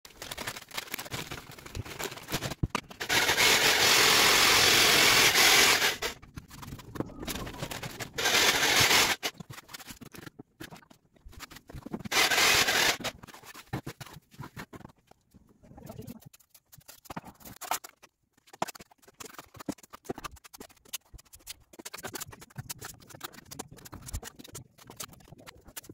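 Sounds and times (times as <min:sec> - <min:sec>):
rustling and scraping: 0:00.1 - 0:25.9
electric drill mixing plaster: 0:02.2 - 0:06.2, 0:07.5 - 0:09.3, 0:12.0 - 0:13.2.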